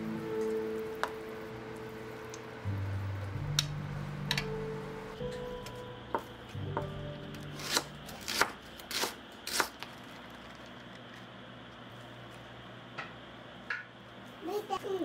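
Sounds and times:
knife chopping herbs: 7.6s - 9.8s.

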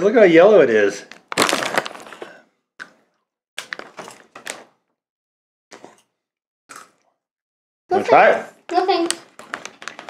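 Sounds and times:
foil snack bag crinkling: 1.1s - 2.4s, 3.6s - 4.7s, 9.0s - 10.0s.

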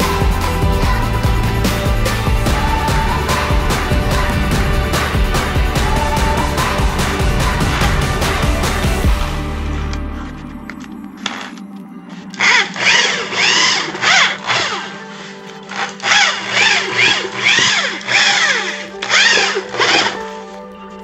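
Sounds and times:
background music: 0.0s - 21.0s
electric drill whining bursts: 11.2s - 20.4s.

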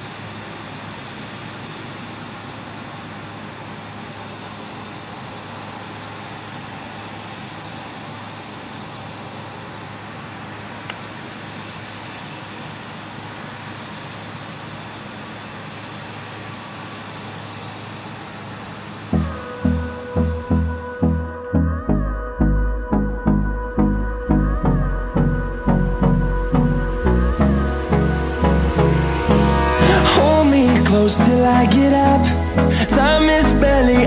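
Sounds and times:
combine harvester drone: 0.0s - 34.0s.

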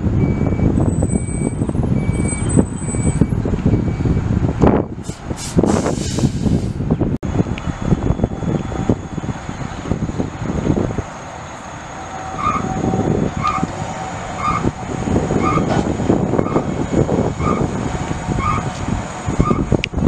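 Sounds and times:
diesel truck engine rumbling: 0.0s - 20.0s
electronic warning beep: 0.2s - 4.3s, 7.8s - 9.4s.

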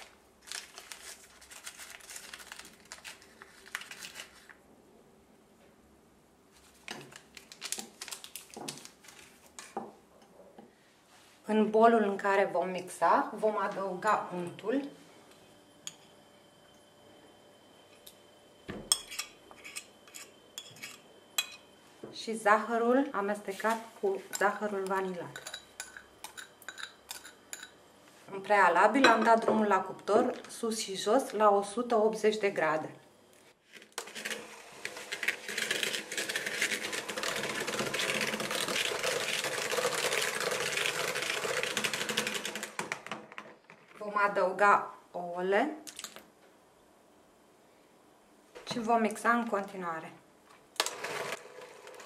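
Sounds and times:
spoon clinking on plate: 18.9s - 21.6s, 25.4s - 27.8s
electric hand mixer running: 34.0s - 42.8s.

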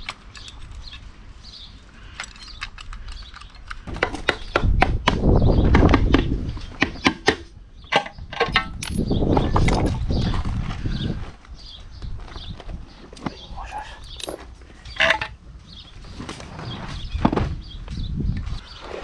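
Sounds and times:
metal clicks of hand tools: 0.0s - 1.1s, 2.1s - 4.6s.

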